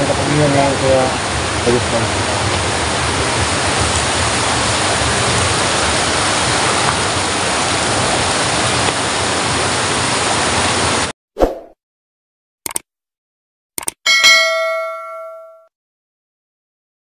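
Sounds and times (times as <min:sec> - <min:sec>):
water rushing over rocks: 0:00.0 - 0:11.1.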